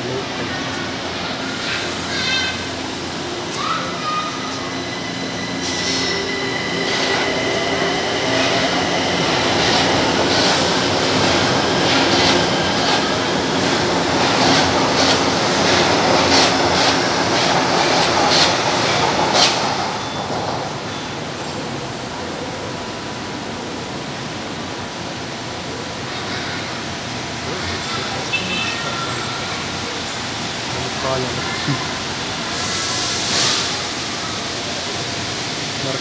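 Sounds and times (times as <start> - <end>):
train rumbling past: 0.0 - 36.0.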